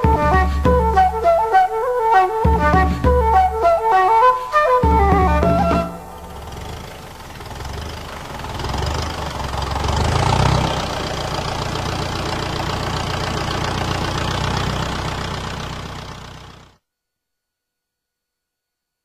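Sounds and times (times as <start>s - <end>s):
tractor engine running: 4.8s - 16.8s.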